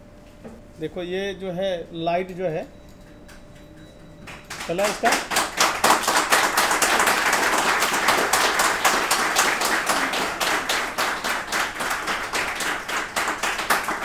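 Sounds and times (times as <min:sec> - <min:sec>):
people applauding: 0:04.2 - 0:14.0.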